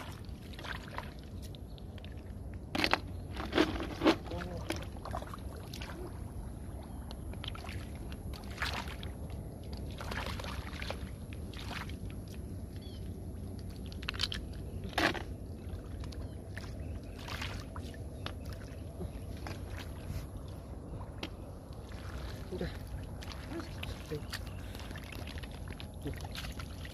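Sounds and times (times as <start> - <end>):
steady low rumble: 0.0 - 26.9
hands splashing in muddy water: 16.0 - 20.1.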